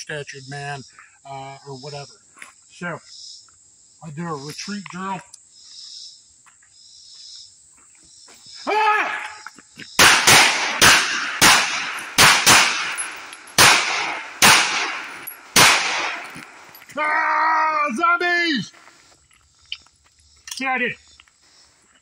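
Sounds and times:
pistol shots with echo: 10.0s - 16.8s.

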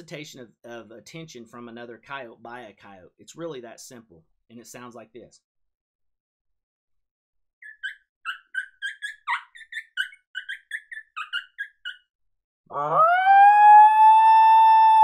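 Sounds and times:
predator call imitating coyote yips: 7.6s - 12.1s.

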